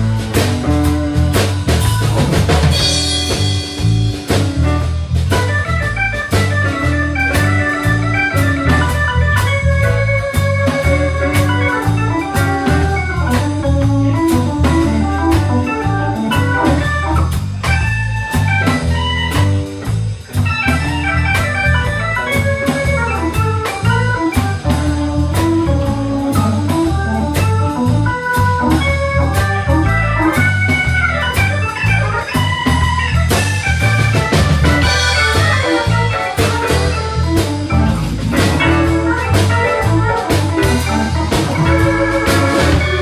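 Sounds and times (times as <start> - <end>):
bass guitar: 0.0 - 43.0
drum beat: 0.0 - 43.0
electric guitar: 0.0 - 43.0
organ-voiced keyboard melody: 0.0 - 43.0.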